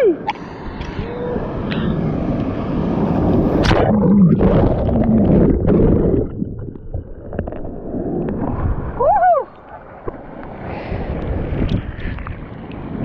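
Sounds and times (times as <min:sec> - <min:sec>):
turbulent water rushing: 0:01.0 - 0:10.1.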